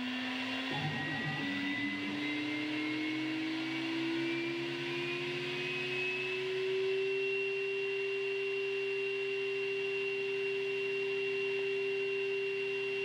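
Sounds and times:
spindle motor whining: 0:00.0 - 0:06.0.

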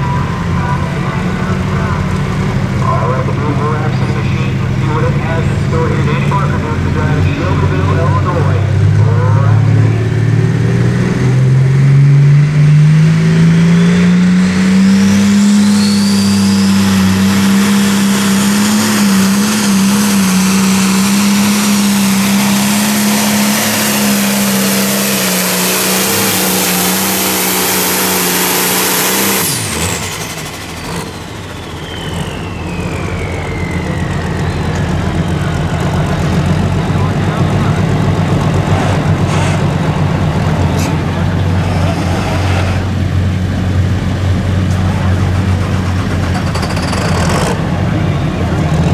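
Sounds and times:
diesel tractor engine at full power: 0:00.0 - 0:48.9
turbo whine: 0:13.0 - 0:48.9.

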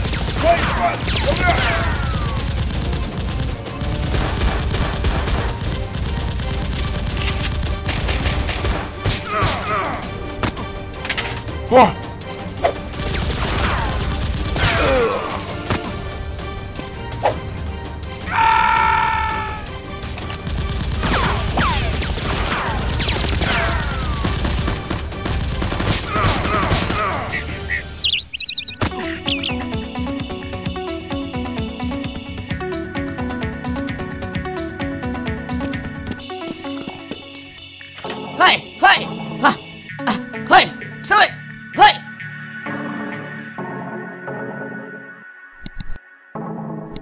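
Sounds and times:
rapid gunfire: 0:00.0 - 0:09.6, 0:12.8 - 0:15.9, 0:20.0 - 0:27.5.

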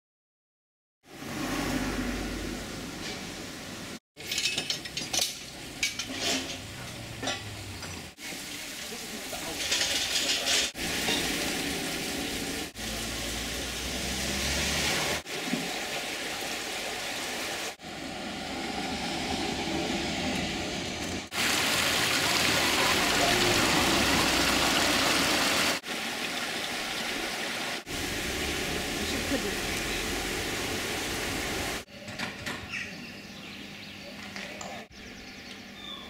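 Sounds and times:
water splashing onto a waterwheel: 0:08.2 - 0:17.9, 0:21.3 - 0:31.8
bus driving by: 0:17.9 - 0:21.3.

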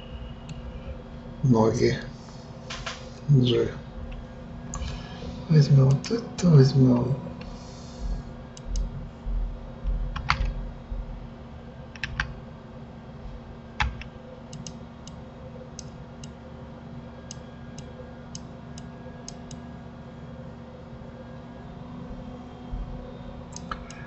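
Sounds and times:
faint steady hum: 0:00.0 - 0:24.0
dull low thumps: 0:08.0 - 0:11.3
keyboard and mouse clicking: 0:12.0 - 0:12.3, 0:13.8 - 0:15.2, 0:23.5 - 0:24.0.

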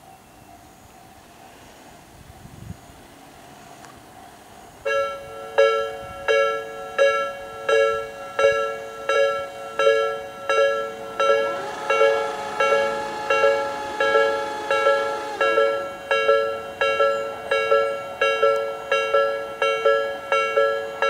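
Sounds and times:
held warning tone: 0:09.8 - 0:17.3.

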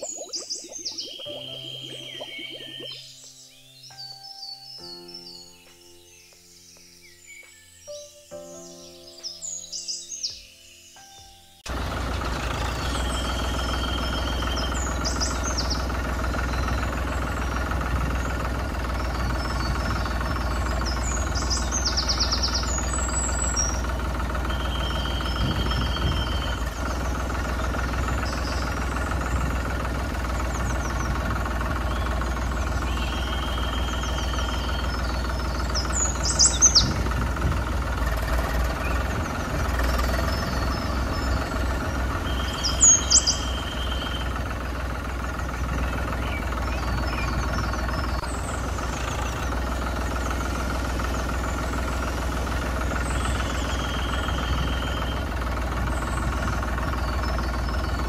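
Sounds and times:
short high chirps: 0:00.0 - 0:03.4
tractor engine humming: 0:11.7 - 0:58.0.

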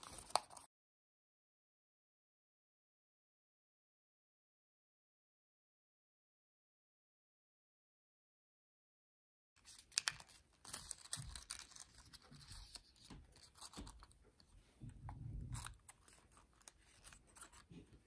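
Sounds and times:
paper crinkling and crackling: 0:00.0 - 0:00.7, 0:09.6 - 0:14.6, 0:15.4 - 0:18.0.

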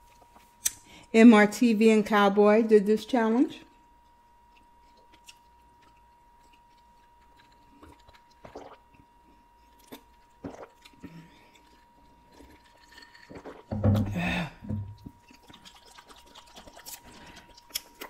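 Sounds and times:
swallowing gulps: 0:05.8 - 0:18.0.

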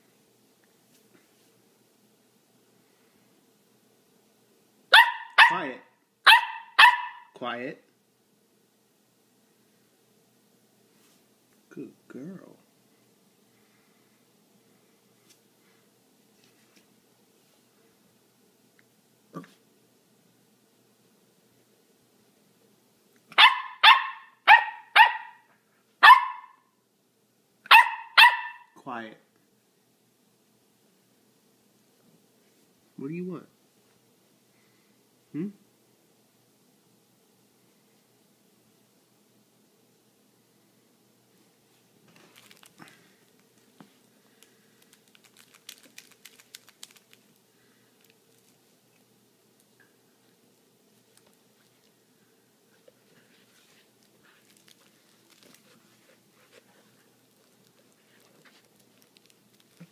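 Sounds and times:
puppy yapping: 0:04.9 - 0:07.4, 0:23.3 - 0:26.6, 0:27.7 - 0:28.8.

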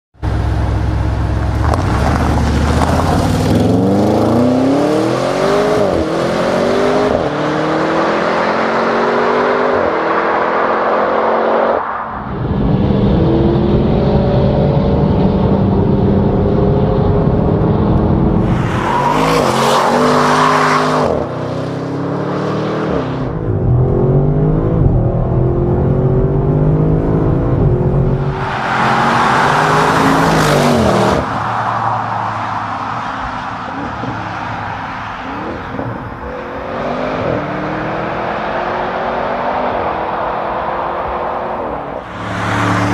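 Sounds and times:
car engine accelerating hard: 0:00.2 - 0:31.4, 0:35.4 - 0:42.9
loud rushing noise: 0:41.9 - 0:42.9.

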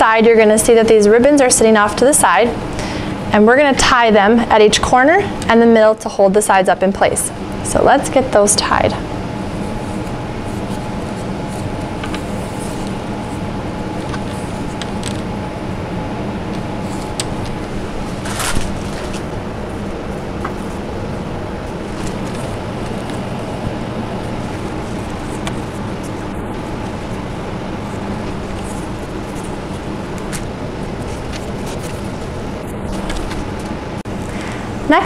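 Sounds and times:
room noise hum: 0:00.0 - 0:35.0
fabric brushing: 0:09.4 - 0:15.3, 0:16.6 - 0:33.8
fabric ribbons rustling: 0:16.6 - 0:33.7.

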